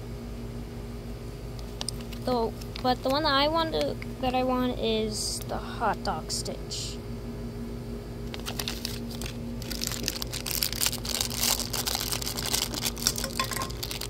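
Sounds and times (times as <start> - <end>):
plastic wrapper crinkling: 1.7 - 3.2, 8.2 - 14.0.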